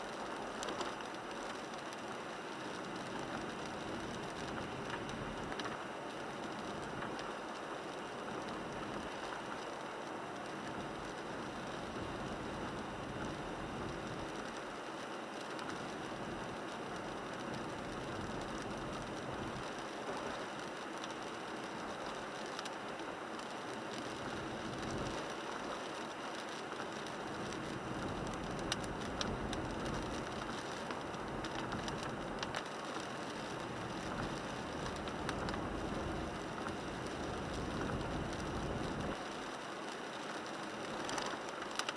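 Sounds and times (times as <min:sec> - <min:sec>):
rain hitting windshield: 0:00.1 - 0:41.9
tyre noise on wet road: 0:15.5 - 0:41.9.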